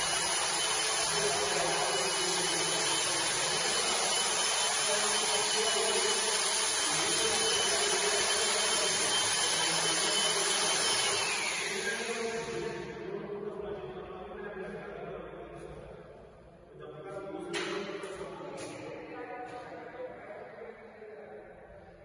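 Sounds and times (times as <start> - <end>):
electric motor whining: 0.0 - 12.3.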